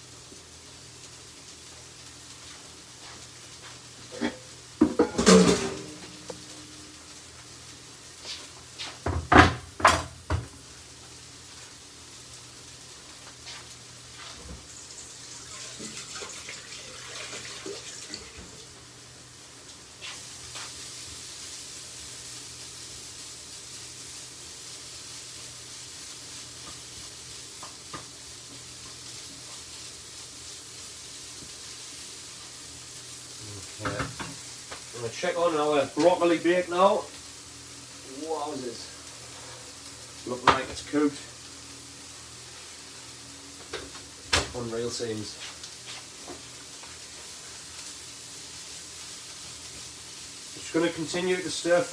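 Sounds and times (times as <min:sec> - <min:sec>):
food sizzling in a pan: 0:00.0 - 0:51.9
knocks on wooden worktop: 0:09.0 - 0:10.5.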